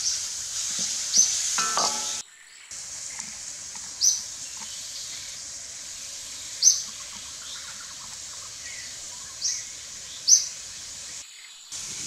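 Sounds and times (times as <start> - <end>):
insect hum: 0.0 - 12.0.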